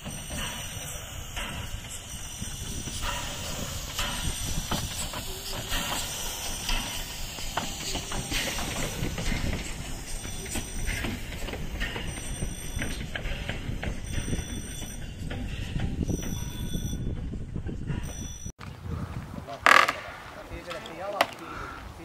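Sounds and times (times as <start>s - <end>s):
steam hissing: 0.0s - 16.5s
steam locomotive passing: 0.0s - 18.5s.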